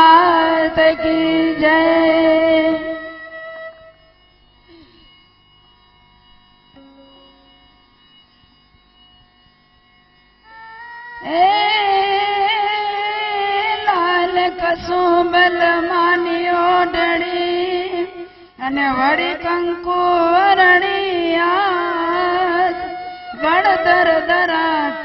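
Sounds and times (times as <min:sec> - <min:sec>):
woman singing devotional folk song: 0:00.0 - 0:04.1, 0:10.4 - 0:25.0.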